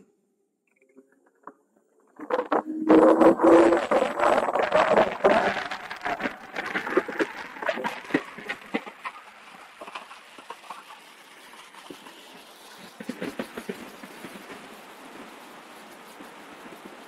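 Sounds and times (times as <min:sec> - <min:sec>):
bike rattling over rough path: 0:02.3 - 0:17.0
faint hiss of air: 0:08.8 - 0:17.0.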